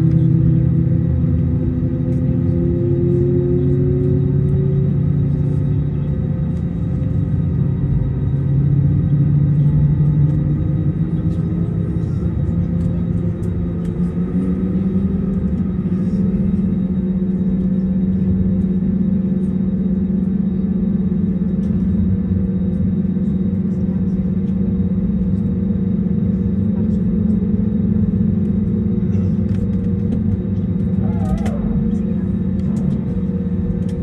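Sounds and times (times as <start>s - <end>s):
aircraft engine rumble and hum: 0.0s - 34.0s.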